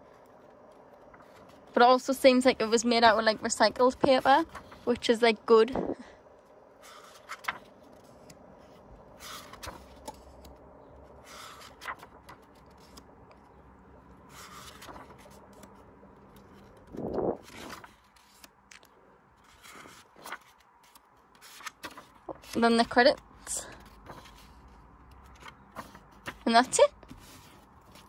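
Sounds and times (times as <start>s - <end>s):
pages turning: 0.1s - 1.8s, 6.8s - 13.5s, 14.3s - 28.0s.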